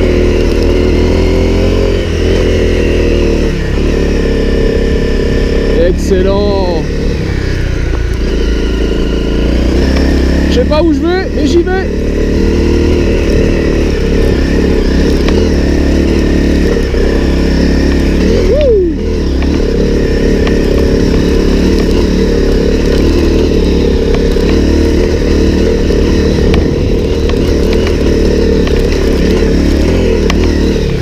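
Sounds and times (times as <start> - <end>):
motorcycle engine running: 0.0 - 31.0.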